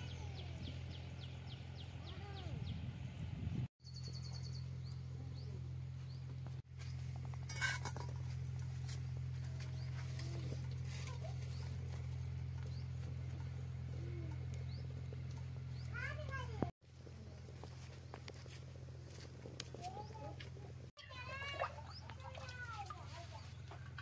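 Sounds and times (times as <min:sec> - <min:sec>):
faint bird chirps: 0:03.8 - 0:06.3.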